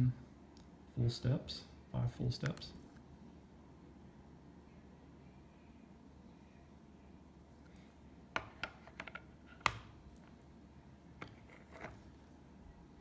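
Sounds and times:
plastic holders clicking on table: 8.4s - 9.9s.

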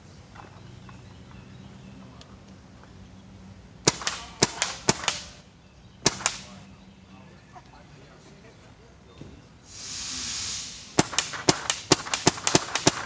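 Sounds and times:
paintball marker air pops: 6.0s - 6.5s, 9.7s - 13.0s.

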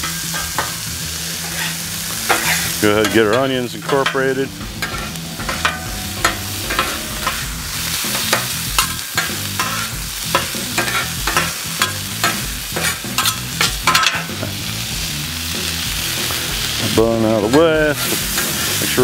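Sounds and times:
metal spatula scraping on griddle: 0.0s - 14.3s
meat and onions sizzling: 0.0s - 19.0s.

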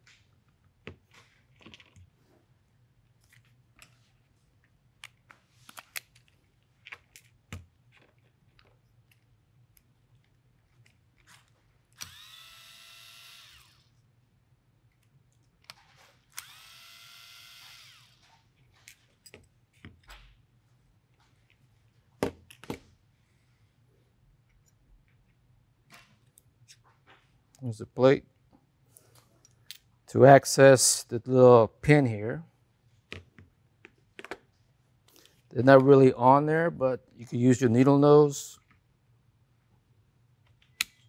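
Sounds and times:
electric screwdriver whining: 12.0s - 13.9s, 16.3s - 18.3s.

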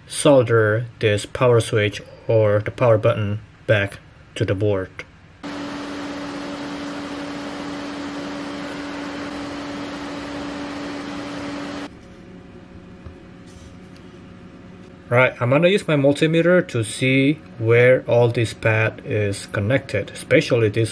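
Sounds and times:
faint hiss and hum: 0.0s - 5.7s, 8.1s - 20.9s
small motor humming: 5.4s - 11.9s.

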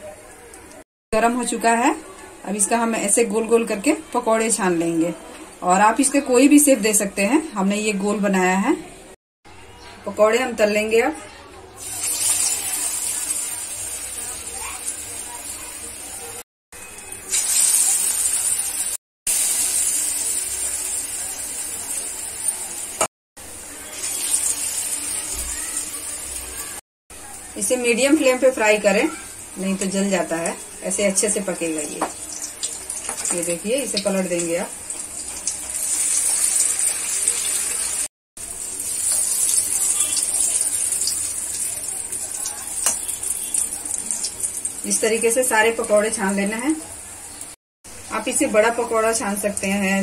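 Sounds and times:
food deep-frying in oil: 11.8s - 50.0s.

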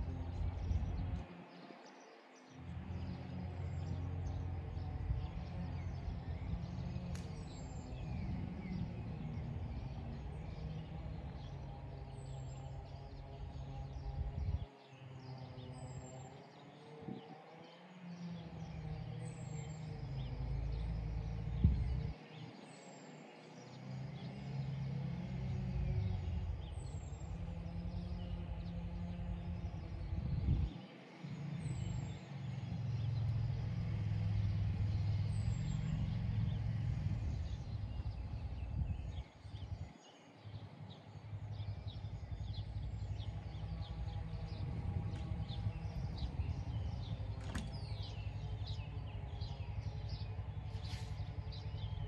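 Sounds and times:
wind gusting on microphone: 27.5s - 30.9s, 32.9s - 40.0s, 41.5s - 52.0s.

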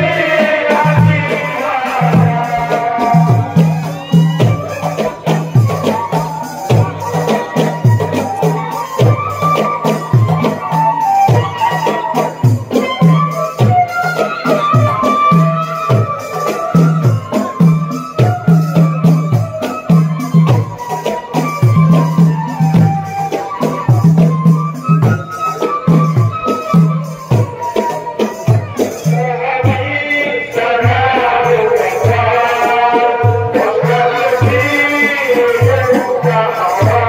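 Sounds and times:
solo voice holding a long line: 0.0s - 6.1s
men singing a devotional chant: 0.0s - 11.6s, 27.8s - 37.0s
rattling percussion: 0.0s - 37.0s
steady drum beat: 0.0s - 37.0s.

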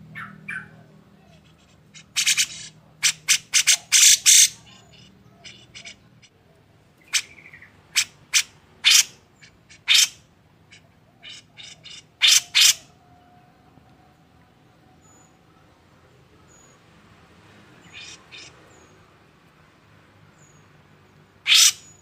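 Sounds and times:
bird giving harsh calls: 0.2s - 6.3s, 7.0s - 13.0s, 17.8s - 19.0s, 21.4s - 22.0s.

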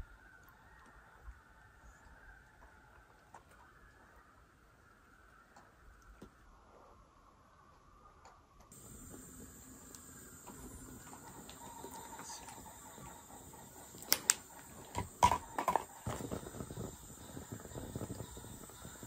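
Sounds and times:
faint steady hiss: 0.0s - 19.0s
sharp clicks: 9.5s - 16.8s.

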